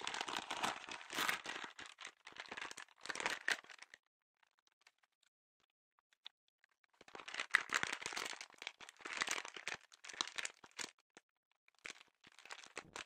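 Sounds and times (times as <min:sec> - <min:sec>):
thin plastic crinkling: 0:00.0 - 0:04.0, 0:06.9 - 0:11.0, 0:11.8 - 0:13.0.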